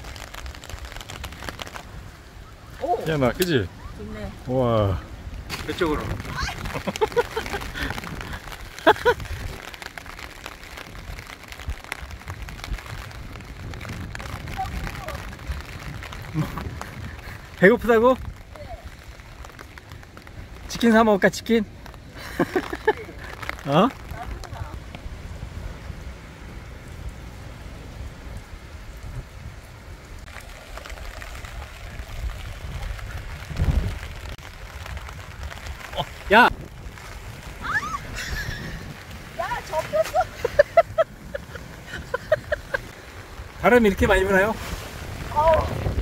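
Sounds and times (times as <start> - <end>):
wind rumble on microphone: 0.0 - 20.8, 21.7 - 46.0
raindrop ticks: 0.0 - 25.4, 28.0 - 46.0
rain falling: 0.0 - 46.0
person exclaiming: 45.3 - 45.8.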